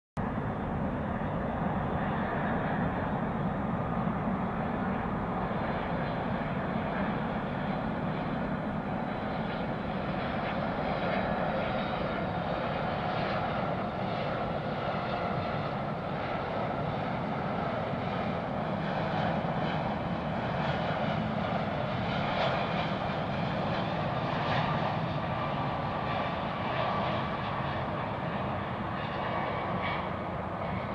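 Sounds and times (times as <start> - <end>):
high jet engine whine: 0.2 - 30.9
jet airliner droning overhead: 0.2 - 30.9.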